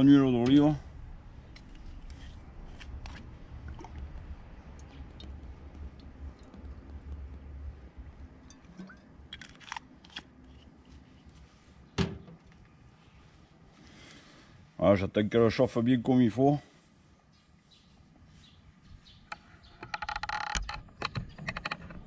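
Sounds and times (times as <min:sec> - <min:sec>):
low rumble: 0:00.0 - 0:09.3.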